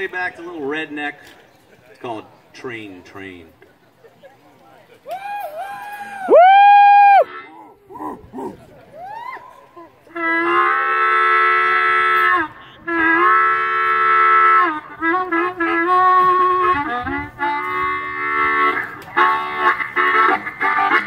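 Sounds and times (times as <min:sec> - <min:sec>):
amplified harmonica playing: 0:10.1 - 0:21.0.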